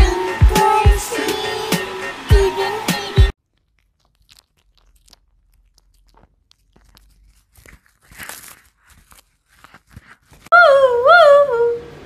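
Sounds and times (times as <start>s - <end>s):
cat gnawing and tearing food: 3.3s - 10.5s.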